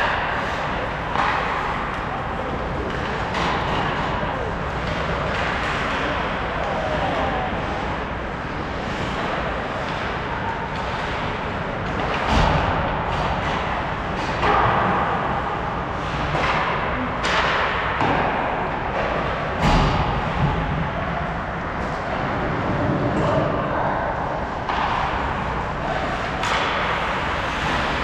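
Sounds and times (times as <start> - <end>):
hockey sticks and puck knocking: 0.0 - 20.8, 24.4 - 28.0
skates scraping on ice: 24.4 - 28.0.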